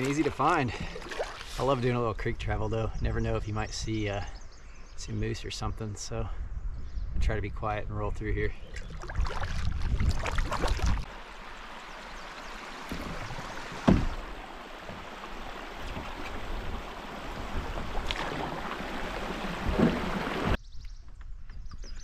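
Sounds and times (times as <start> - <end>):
water swishing around paddle: 0.0 - 1.8, 8.7 - 20.6.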